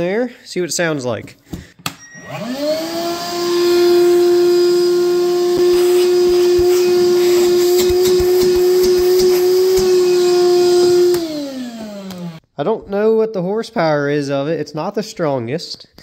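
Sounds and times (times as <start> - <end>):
vacuum motor whine: 2.1 - 12.4.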